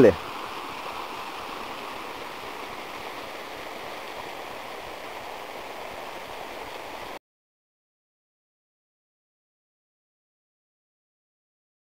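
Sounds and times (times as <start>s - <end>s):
water rushing over rocks: 0.0s - 7.2s.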